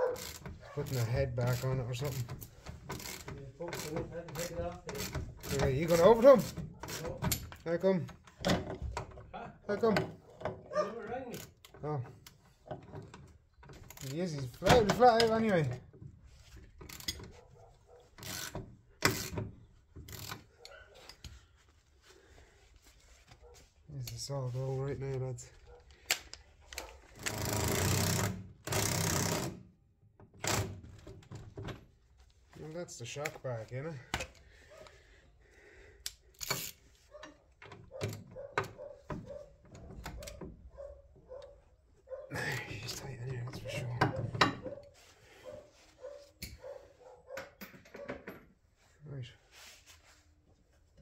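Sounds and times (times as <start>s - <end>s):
ratchet wrench clicking: 0.2s - 7.5s, 16.8s - 17.2s, 18.2s - 19.4s, 20.0s - 20.8s, 36.0s - 36.8s
socket ratchet clicking: 18.2s - 19.4s, 36.0s - 36.8s.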